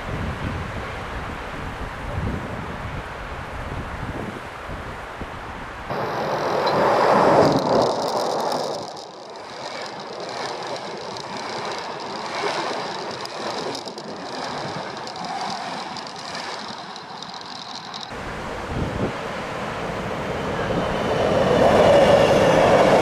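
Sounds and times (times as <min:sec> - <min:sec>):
train clattering over bridge: 0:05.9 - 0:23.0.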